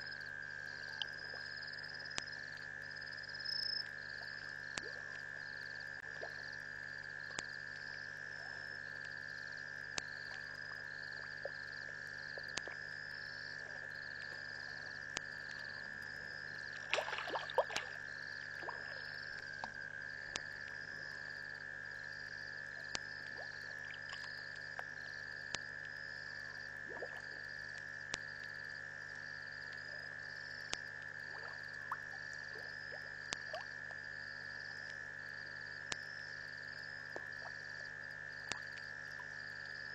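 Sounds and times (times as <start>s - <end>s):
frogs trilling: 0.0s - 27.5s.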